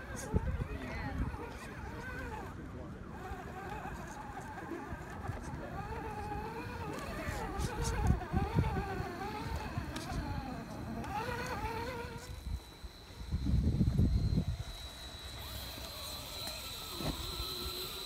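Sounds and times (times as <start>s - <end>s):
rc car motor whining: 0.0s - 18.0s
low buffeting: 5.4s - 17.9s.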